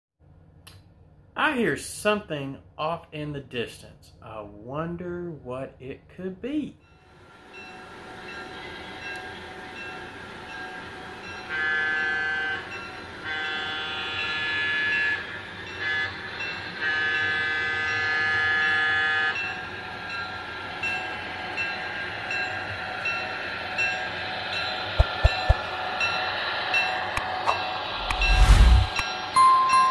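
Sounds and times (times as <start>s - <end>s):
train running rumble: 7.4s - 29.2s
locomotive horn blasts: 11.4s - 19.5s.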